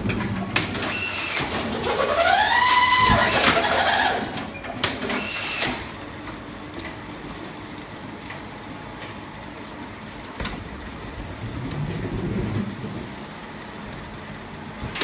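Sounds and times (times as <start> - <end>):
roller conveyor humming: 0.0 - 15.0
strapping machine noise: 0.6 - 5.9.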